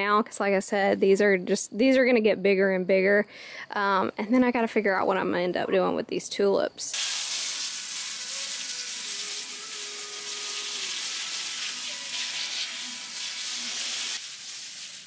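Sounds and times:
hose spraying water: 6.9 - 15.0.

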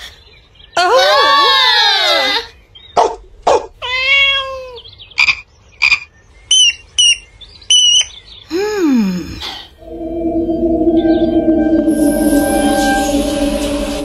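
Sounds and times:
cartoon cat meow: 3.8 - 4.8
frog ribbit croaks: 5.2 - 6.1
falling tone: 9.8 - 14.0.

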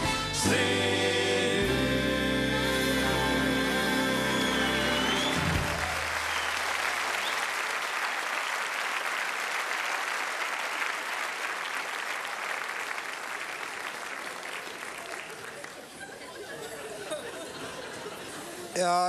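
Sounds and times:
large audience applauding: 4.1 - 17.0.

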